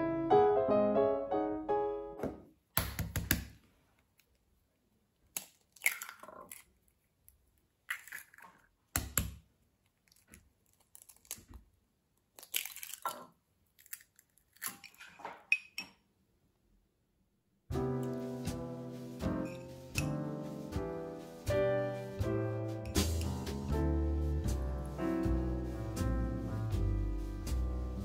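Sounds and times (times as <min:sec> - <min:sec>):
eggshell crackling apart: 0:05.2 - 0:15.0.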